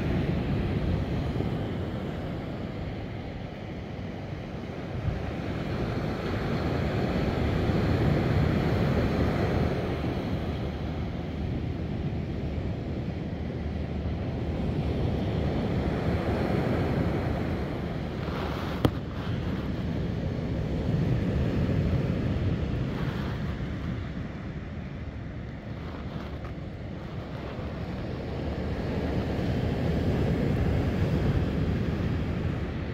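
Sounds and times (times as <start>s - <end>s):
wind buffeting microphone: 0.0s - 32.9s
surf breaking on beach: 16.0s - 20.0s.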